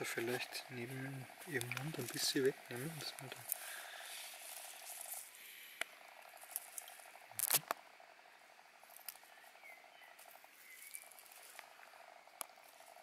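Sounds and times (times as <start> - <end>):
leaves and grass rustling: 0.0 - 7.7, 8.8 - 13.0.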